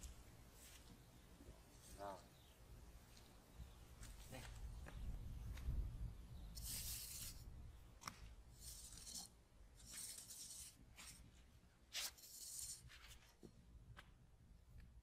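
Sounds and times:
machete scraping sandy soil: 6.6 - 7.4.

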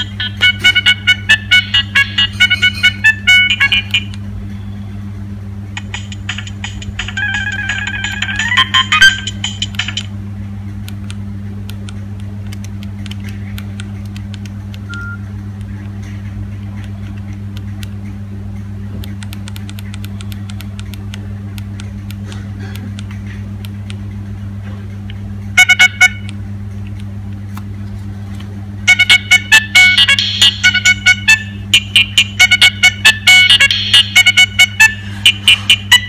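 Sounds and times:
phone ringtone: 0.0 - 4.7, 7.1 - 9.6, 28.9 - 36.0
steady low hum: 0.0 - 36.0.

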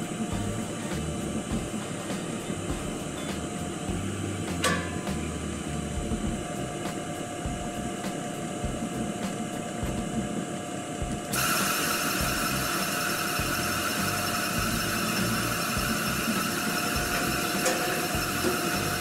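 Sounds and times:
loud hiss: 0.0 - 19.0
motor humming: 0.0 - 19.0.

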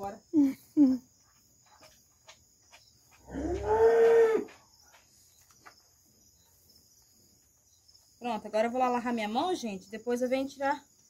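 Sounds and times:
insects chirring: 0.0 - 11.0
cow mooing: 3.2 - 4.5.

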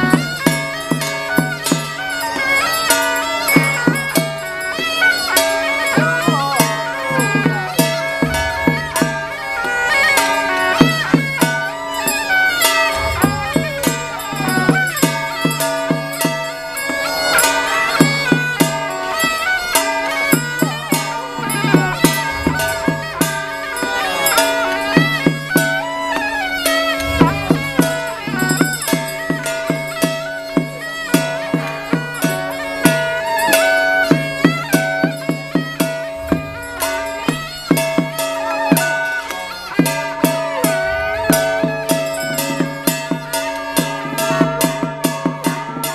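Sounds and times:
shrill double-reed horn melody: 0.0 - 45.9
struck percussion beat: 3.0 - 17.2, 18.0 - 39.2, 39.8 - 45.9
held drone: 7.1 - 10.2, 12.6 - 15.2, 21.0 - 24.7, 26.6 - 28.8, 35.7 - 38.3, 40.4 - 42.7.

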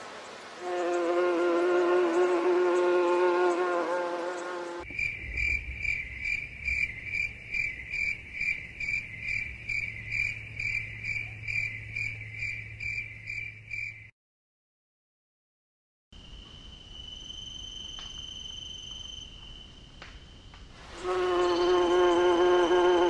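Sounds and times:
insect chirping: 0.0 - 14.1, 16.2 - 23.0
pitched buzz: 0.6 - 4.8, 21.0 - 23.0.

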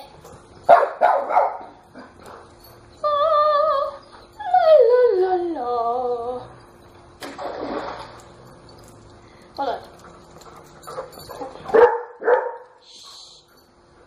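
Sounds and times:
dog barking: 0.7 - 1.7, 11.7 - 12.8.

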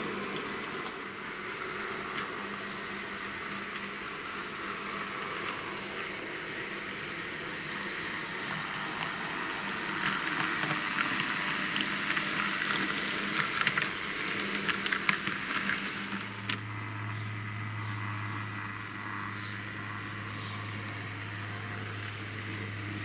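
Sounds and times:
deeper steady hum: 0.0 - 23.0
model tram motor hum: 0.0 - 23.0
small wheels clicking over rail joints: 8.3 - 16.7.

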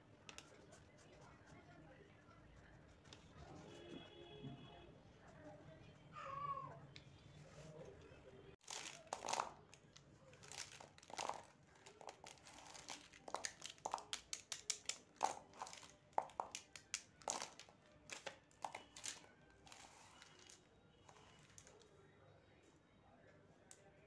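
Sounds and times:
plastic marker pens clattering: 8.6 - 21.8.

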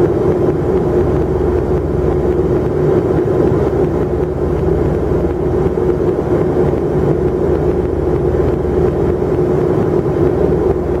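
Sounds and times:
jet airliner cabin noise: 0.0 - 11.0
steady droning tone: 0.0 - 11.0.

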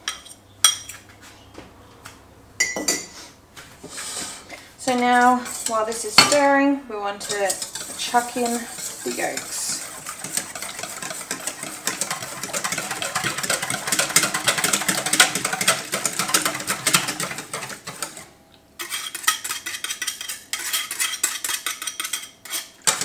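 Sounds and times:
whisk rattling against metal bowl: 4.8 - 18.2, 18.8 - 23.0.

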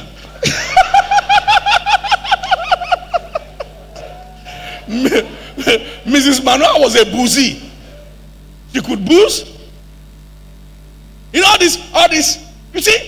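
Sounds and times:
high-pitched laugh: 0.4 - 6.0.

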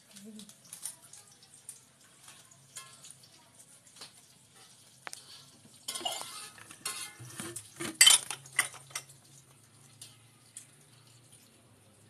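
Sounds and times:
metal spatula scraping wok: 4.6 - 9.0.

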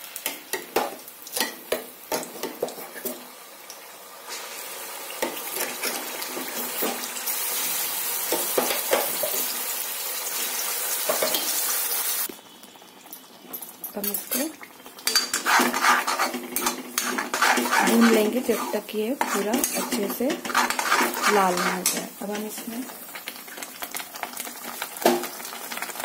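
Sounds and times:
paste sizzling in hot oil: 0.0 - 26.0
spoon scraping a pan: 14.0 - 22.9.

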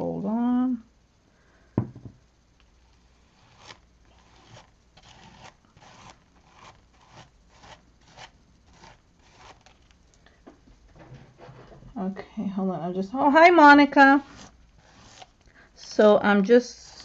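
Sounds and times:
tool scraping paste on stencil: 3.1 - 9.9, 14.0 - 15.3.

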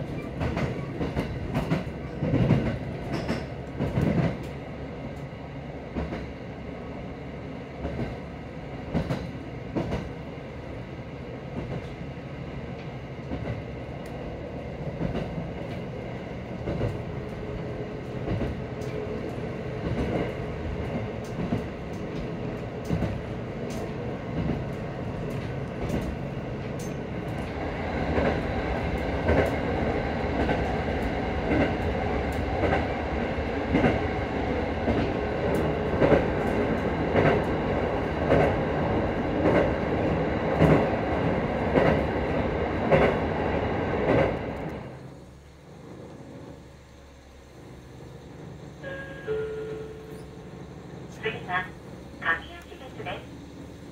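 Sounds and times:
wheels clacking over rail joints: 0.0 - 4.6
train engine rumble: 0.0 - 53.9.

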